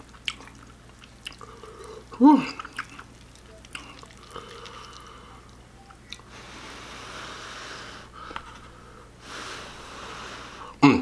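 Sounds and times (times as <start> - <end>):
person blowing on noodles: 6.3 - 10.8.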